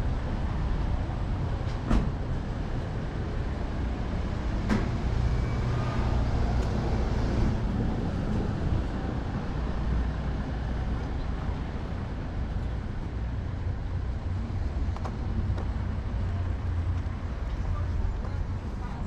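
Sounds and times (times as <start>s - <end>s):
city traffic rumble: 0.0s - 19.0s.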